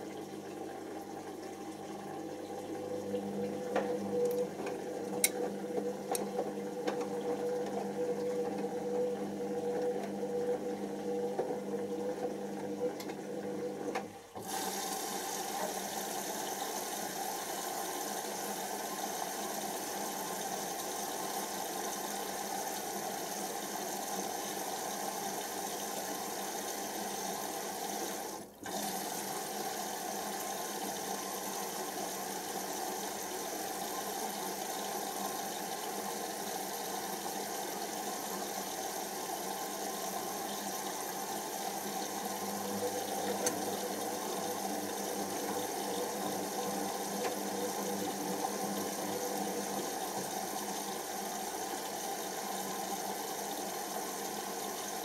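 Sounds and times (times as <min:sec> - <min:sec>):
washing machine motor running: 0:00.0 - 0:55.0.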